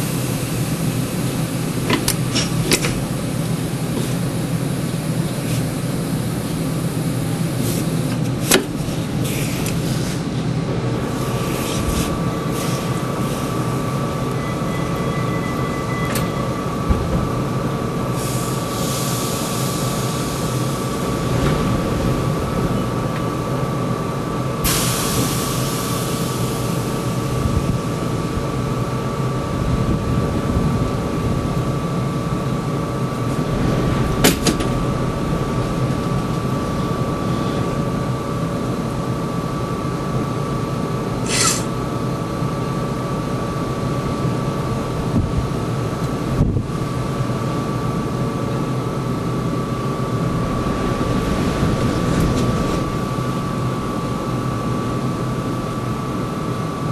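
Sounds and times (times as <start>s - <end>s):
tram running on rails: 0.0s - 56.9s
air hiss: 24.6s - 26.8s.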